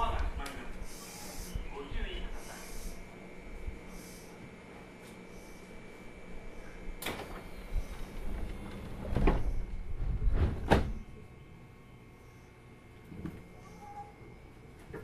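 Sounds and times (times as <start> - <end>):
electrical hum: 0.0 - 15.0
knocks and thuds in train car: 8.5 - 11.0.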